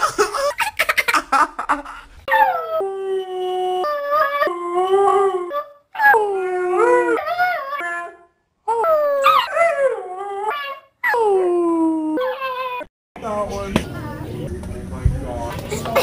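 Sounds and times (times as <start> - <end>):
puppy howling: 2.3 - 12.9.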